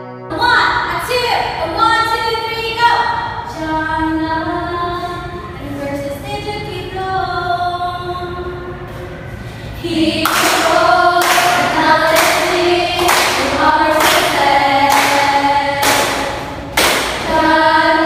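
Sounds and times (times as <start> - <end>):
women singing a jingle: 9.8 - 16.6, 17.2 - 18.0
sharp beats: 10.2 - 18.0.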